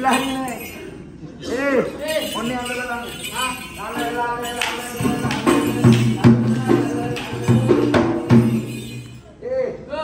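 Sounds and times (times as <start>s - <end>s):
jingling bells: 0.0s - 9.4s.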